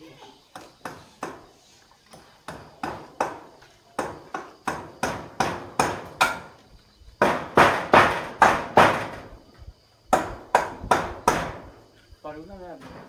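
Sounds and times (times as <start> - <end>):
hammer striking wooden frame: 0.6 - 1.4, 2.4 - 6.6, 7.2 - 9.3, 10.1 - 11.7.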